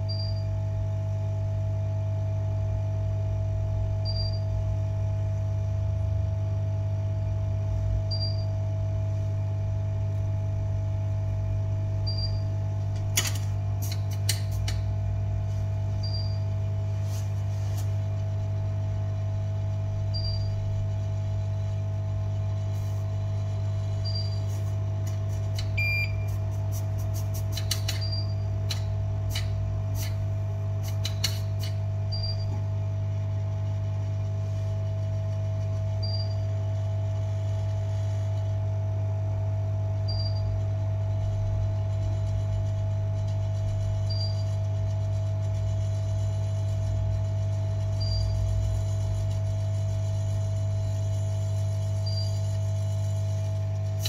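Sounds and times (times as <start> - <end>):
electrical equipment hum: 0.0 - 54.0
short high beep: 16.0 - 16.4.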